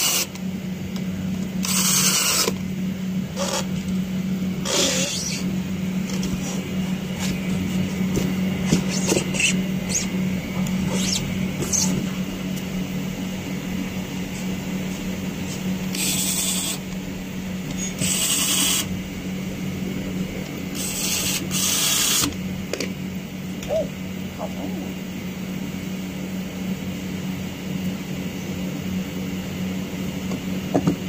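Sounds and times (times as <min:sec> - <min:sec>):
steady low hum: 0:00.0 - 0:31.0
electric screwdriver driving screws: 0:01.6 - 0:02.6, 0:15.9 - 0:16.8, 0:18.0 - 0:18.9, 0:20.8 - 0:22.4.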